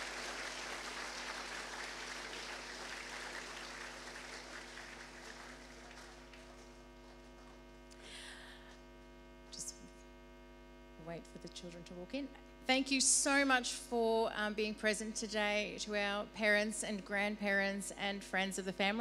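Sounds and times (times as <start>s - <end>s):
audience applause: 0.0s - 6.7s
electrical hum: 0.0s - 19.0s.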